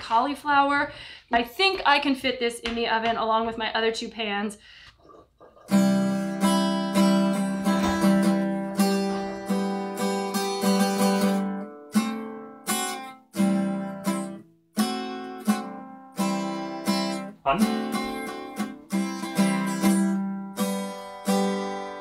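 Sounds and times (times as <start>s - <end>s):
acoustic guitar tune: 5.0s - 22.0s.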